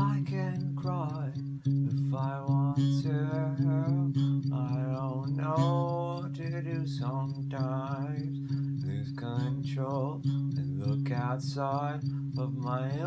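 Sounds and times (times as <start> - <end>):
sliding guitar melody: 0.0 - 13.0.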